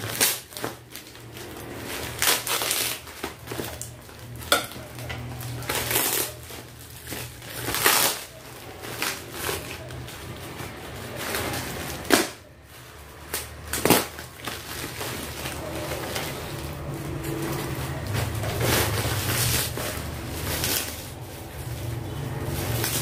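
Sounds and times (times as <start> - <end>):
sharp plastic cracks: 0.0 - 10.0, 11.1 - 12.5, 13.2 - 16.5
plastic packaging crinkling: 0.0 - 23.0.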